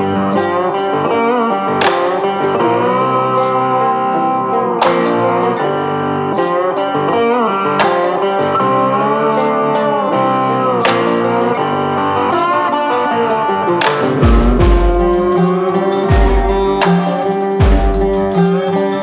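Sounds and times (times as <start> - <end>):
blues guitar with steady beat: 0.0 - 19.0.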